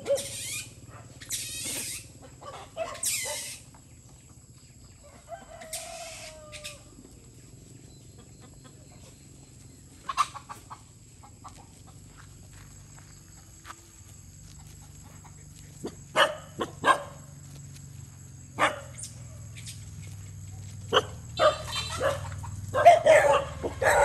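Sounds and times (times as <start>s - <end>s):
shrill animal cries: 0.0s - 3.7s, 5.5s - 6.9s, 21.4s - 24.0s.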